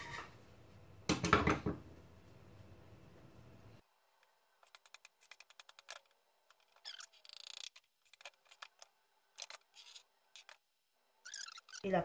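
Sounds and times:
spatula scrape: 0.0 - 0.3.

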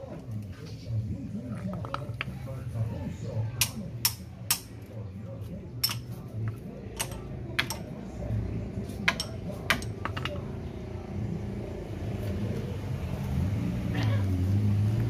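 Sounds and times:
metal tools clinking: 5.8 - 7.9, 9.0 - 10.4.

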